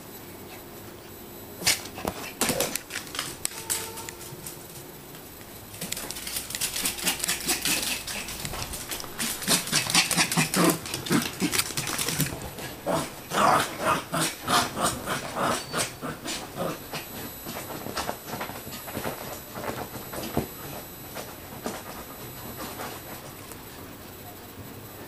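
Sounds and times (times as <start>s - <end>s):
dog claws clicking on hardwood floor: 5.8s - 12.6s.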